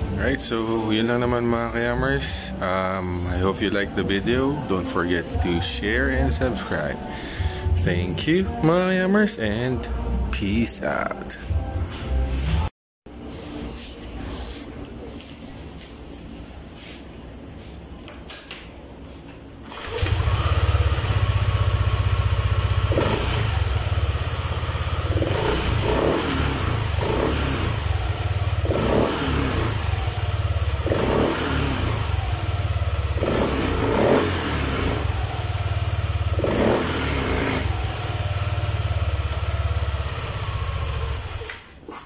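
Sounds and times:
scooter engine revving: 19.6 - 41.6.

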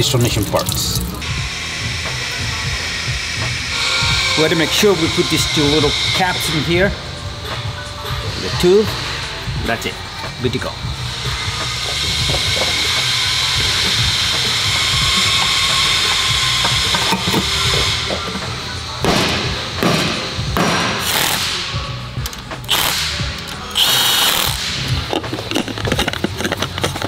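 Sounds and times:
background music: 0.0 - 27.0
metal knocks and clanks: 11.9 - 21.0, 24.9 - 27.0
cordless drill spinning a bolt: 23.7 - 27.0.

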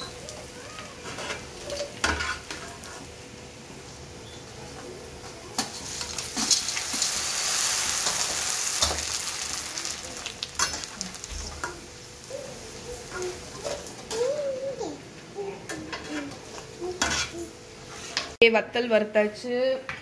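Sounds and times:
crisps sizzling in hot oil: 0.0 - 14.2.

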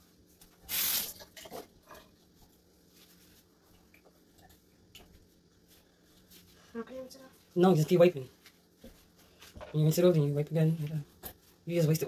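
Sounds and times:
short hiss: 0.7 - 1.2.

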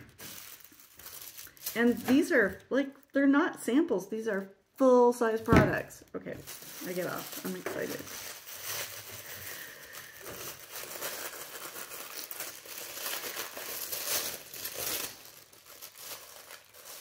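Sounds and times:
tissue paper crinkling: 0.0 - 2.6, 6.4 - 17.0.

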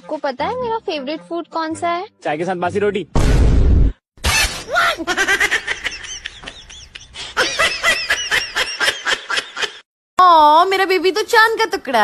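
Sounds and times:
laughter: 4.9 - 9.8.

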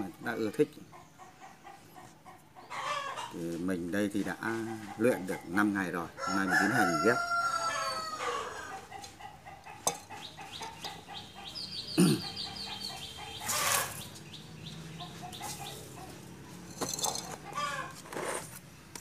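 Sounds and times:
chickens clucking: 0.0 - 18.2
bird chirps: 10.1 - 16.2
rustling and scraping basket: 13.4 - 14.3, 15.1 - 19.0.

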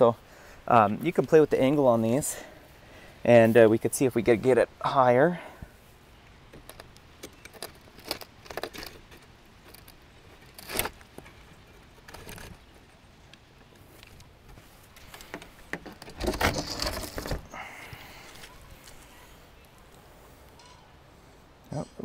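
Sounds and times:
rustling and scraping handling noise: 5.7 - 20.7
light metal clicks and rattles: 6.5 - 13.4.

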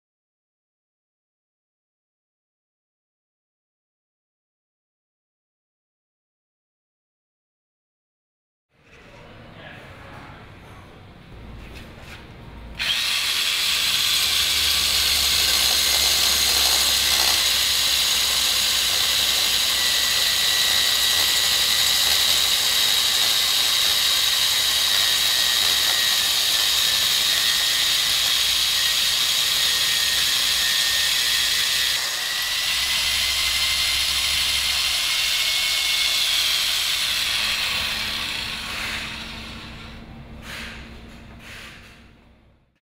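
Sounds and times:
drill cutting concrete: 12.8 - 40.7.

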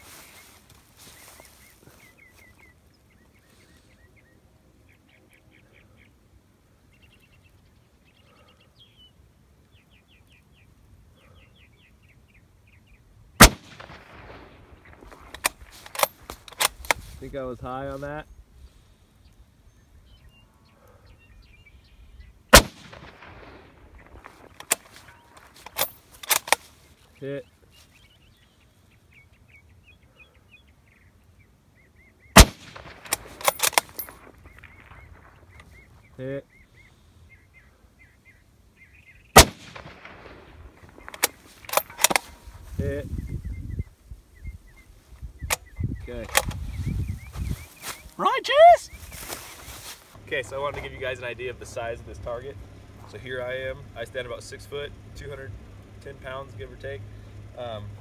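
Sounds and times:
small birds chirping: 0.0 - 58.0
rifle shot echoing: 13.4 - 16.8, 22.5 - 26.6, 32.4 - 35.7, 39.3 - 42.6
rifle bolt clicking: 25.6 - 26.6, 32.4 - 34.1, 41.1 - 42.4.

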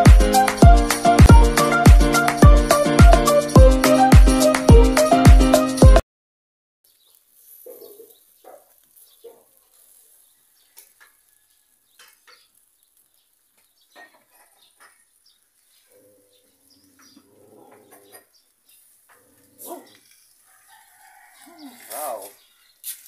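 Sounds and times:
faint bird calls: 6.9 - 12.6.

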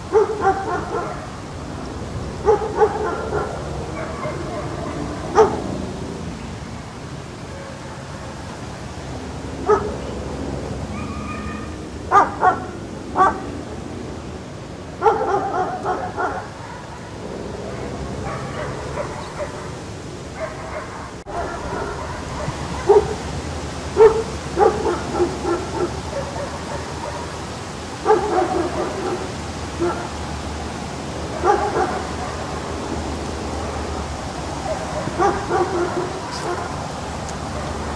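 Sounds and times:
steady background hiss: 0.0 - 37.9
dog barking: 0.1 - 1.3, 2.4 - 5.7, 9.6 - 10.0, 12.1 - 13.5, 15.0 - 19.8, 20.4 - 23.2, 24.0 - 27.4, 28.0 - 30.1, 31.3 - 32.6, 34.6 - 36.8, 37.5 - 37.8.

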